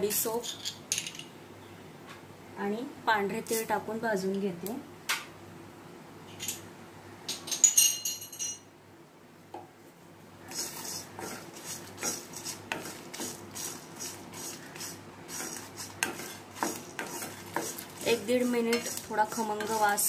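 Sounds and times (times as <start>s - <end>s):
spatula scraping spices in pan: 10.4s - 20.0s.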